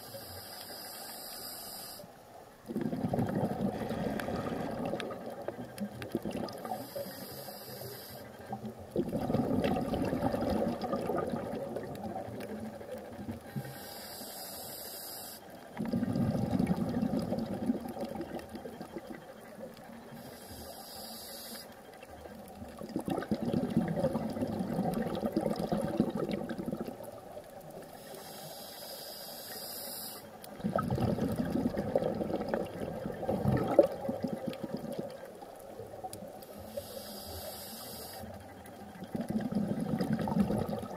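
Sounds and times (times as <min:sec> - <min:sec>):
regulator hissing inhale: 0:00.0 - 0:02.1, 0:06.6 - 0:08.6, 0:13.4 - 0:15.6, 0:20.1 - 0:21.8, 0:27.9 - 0:30.4, 0:36.5 - 0:38.5
exhaled bubbles gurgling: 0:02.6 - 0:07.4, 0:08.3 - 0:13.6, 0:15.6 - 0:20.3, 0:22.0 - 0:28.0, 0:30.4 - 0:36.8, 0:38.0 - 0:40.9.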